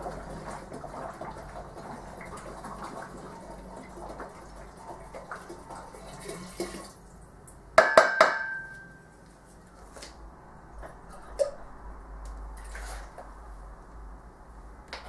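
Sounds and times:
bottle knocking on metal tank: 7.8 - 8.7.

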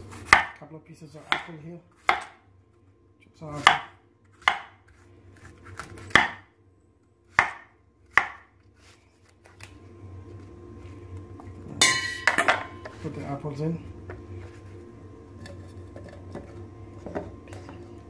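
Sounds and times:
knife slicing apple: 0.1 - 0.6, 1.2 - 2.4, 3.5 - 4.8, 5.4 - 6.4, 7.3 - 8.5.

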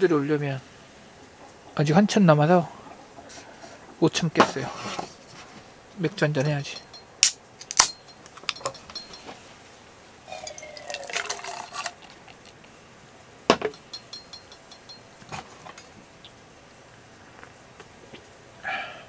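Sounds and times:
glass clinks: 6.3 - 9.4, 10.3 - 12.4, 13.5 - 15.1
beer pouring into a glass: 10.3 - 12.7.

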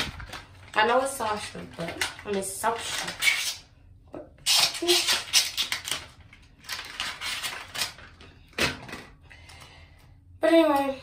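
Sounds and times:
plastic packaging crinkling: 0.0 - 3.6, 4.5 - 8.3.

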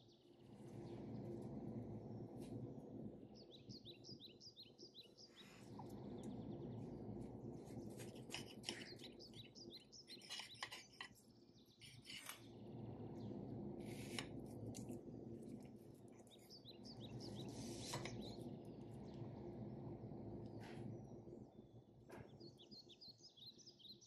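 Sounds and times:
birds chirping faintly: 0.0 - 24.0
knife and fork scraping plate: 8.0 - 9.1, 10.1 - 11.2, 11.8 - 12.4.

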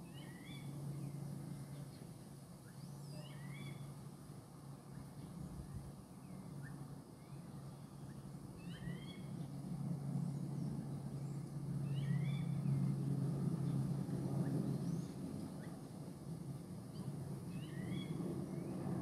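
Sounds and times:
steady low hum: 0.0 - 19.0
bird chirping: 0.1 - 3.9, 6.2 - 9.6, 10.6 - 12.8, 16.9 - 18.7.

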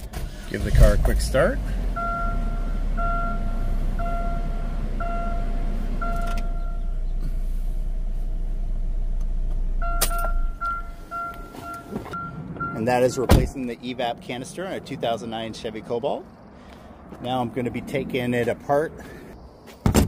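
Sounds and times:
car engine idling: 0.0 - 12.8
door warning chime beeping: 2.0 - 7.0, 9.8 - 12.9.

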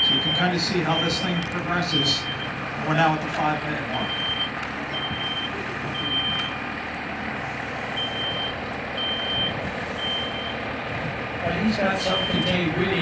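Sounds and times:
smoke detector beeping: 0.0 - 1.5, 2.2 - 2.6, 4.0 - 6.6, 8.0 - 10.6, 12.1 - 12.6
steady background noise: 0.0 - 13.0.

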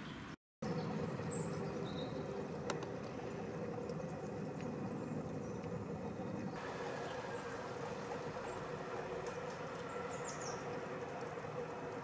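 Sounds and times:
bird chirping descending: 0.0 - 2.4, 9.8 - 10.7
low constant hum: 0.6 - 12.0.

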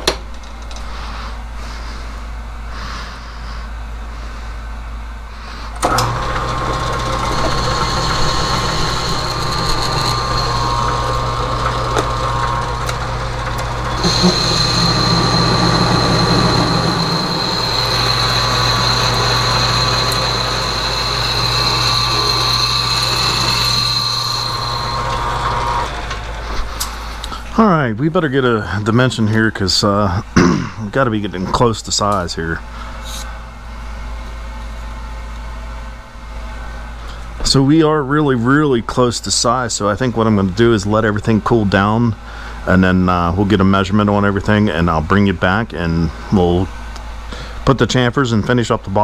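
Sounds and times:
lathe low hum: 0.0 - 49.0
metal cutting with high whine: 5.8 - 26.3.

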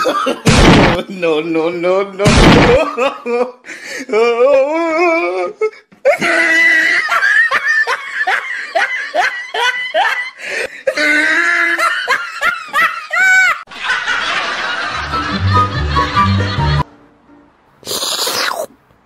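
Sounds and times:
person laughing hard: 0.0 - 0.5, 2.4 - 3.6, 6.1 - 13.6.

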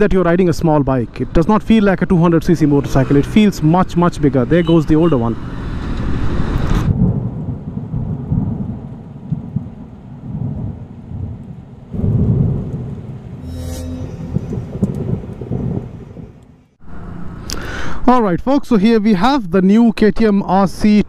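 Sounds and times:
steady rain: 5.4 - 13.4
low rolling thunder: 6.6 - 13.4, 14.3 - 16.7.

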